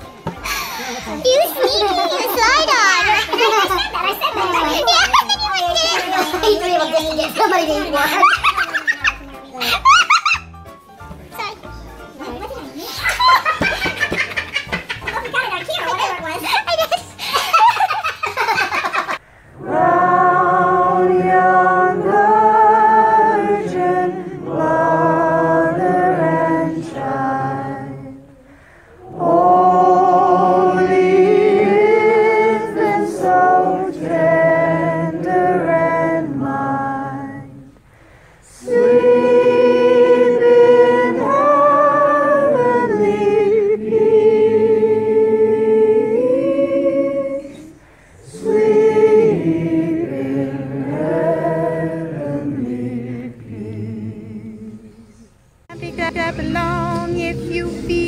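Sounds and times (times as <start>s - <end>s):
people laughing: 0.4s - 10.6s, 12.3s - 19.2s
group singing a cappella: 19.5s - 58.0s.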